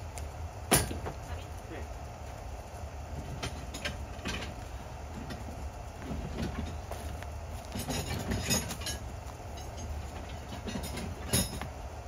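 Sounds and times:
steady low rumble: 0.0 - 12.0
equipment knocking and clattering: 5.2 - 11.8.

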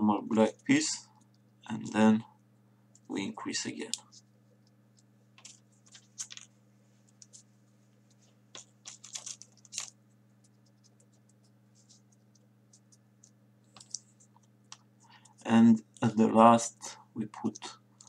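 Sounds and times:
low steady hum: 0.0 - 18.0
paper clicks and scrapes: 5.4 - 6.5, 8.2 - 14.5.

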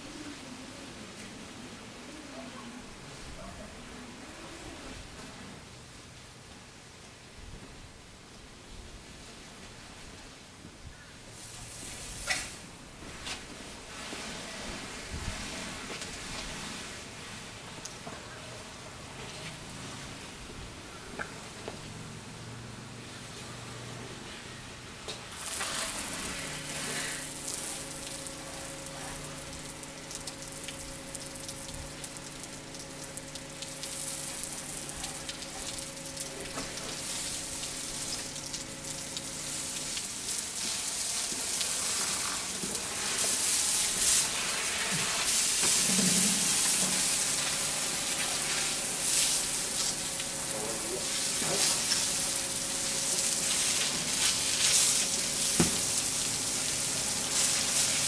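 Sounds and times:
water spray hissing on roof tiles: 11.3 - 18.0, 25.3 - 58.0
steady motor hum: 18.6 - 58.0.

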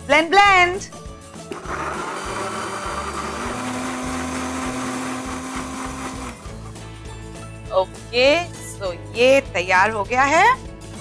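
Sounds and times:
blender running: 1.5 - 6.8.

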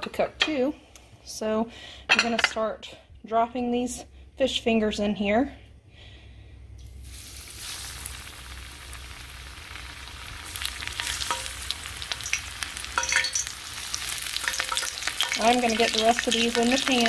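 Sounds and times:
fish fingers sizzling in oil: 7.0 - 17.0.

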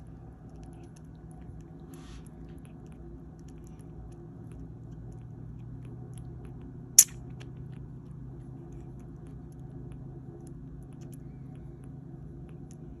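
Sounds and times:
kitten suckling from bottle: 0.0 - 13.0
sharp click: 7.0 - 7.2.

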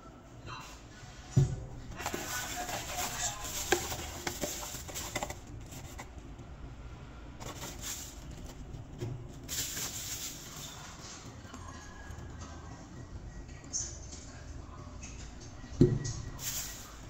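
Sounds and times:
bubble wrap crinkling: 1.9 - 6.1, 7.4 - 10.8.

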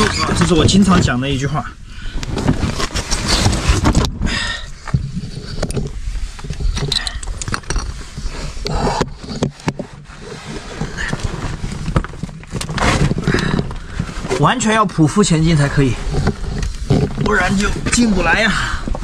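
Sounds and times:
clothing scraping against rock: 2.3 - 4.3, 7.7 - 18.6.

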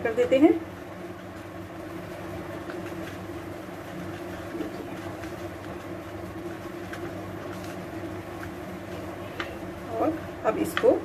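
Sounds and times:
low mechanical hum: 0.0 - 11.0
fingers kneading soft dough: 1.2 - 11.0.

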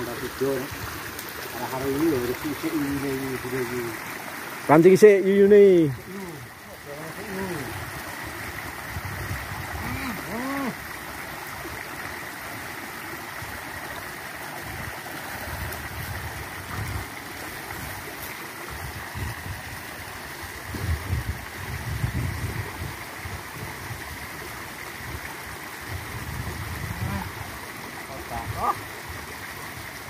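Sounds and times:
small stream flowing: 0.0 - 30.0.

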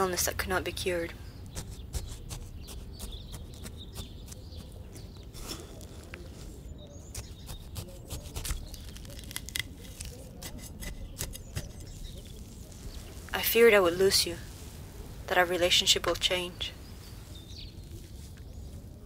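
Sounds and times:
trowel digging in soil and leaves: 1.6 - 14.9.

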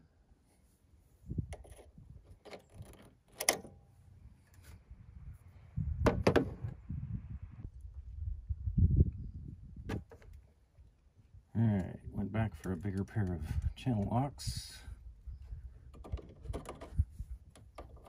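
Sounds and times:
low rumbling handling noise: 1.3 - 8.1.

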